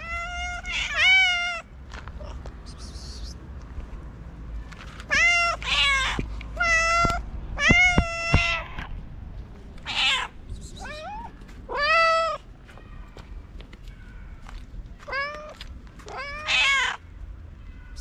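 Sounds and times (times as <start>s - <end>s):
cat meowing: 0.0s - 1.6s, 5.1s - 8.9s, 9.8s - 13.1s, 15.0s - 17.0s.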